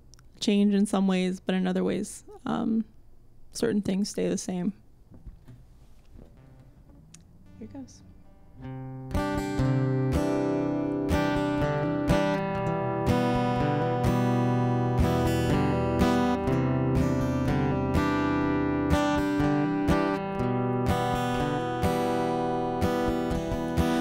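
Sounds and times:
acoustic guitar strumming chords: 6.2s - 24.0s.

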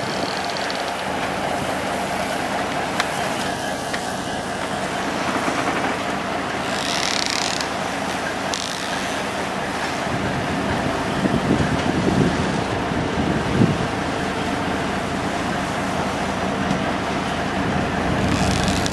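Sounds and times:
mechanical drone: 17.5s - 18.9s.

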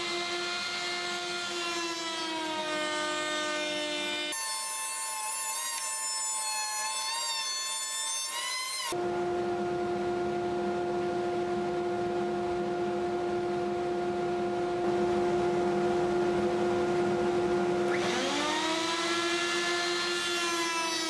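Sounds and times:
router motor whine: 0.0s - 4.4s, 17.9s - 21.0s.

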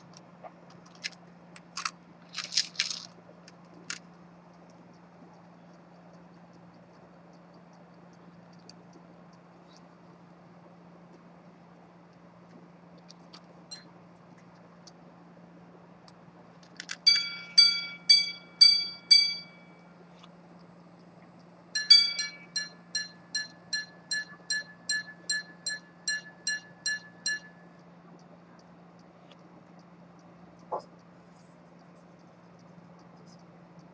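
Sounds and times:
watch mechanism clicks: 0.0s - 11.2s, 16.0s - 33.9s
pocket watch gong strikes: 17.1s - 19.8s, 21.8s - 27.5s.

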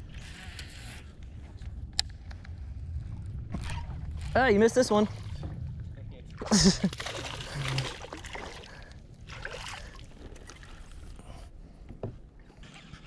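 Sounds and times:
water splashing around kayak: 3.0s - 11.5s.

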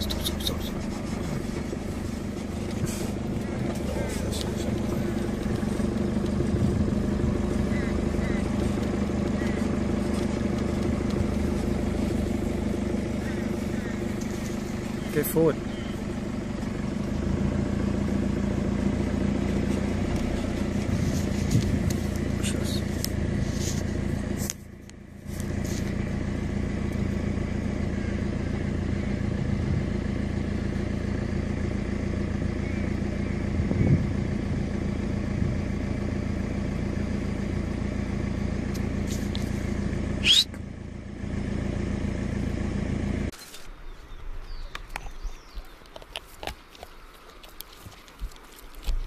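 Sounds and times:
vehicle engine idling: 0.0s - 49.0s.

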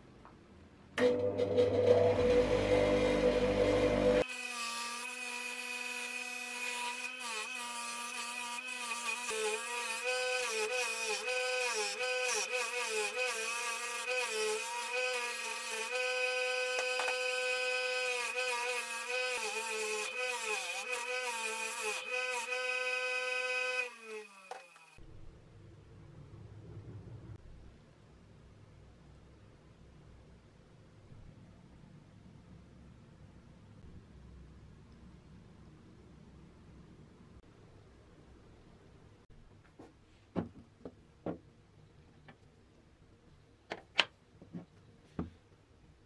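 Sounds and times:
bench grinder whine: 1.0s - 25.0s.

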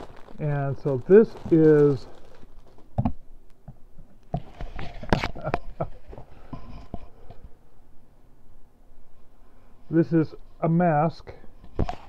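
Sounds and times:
fabric and cardboard rustling: 0.0s - 3.1s.

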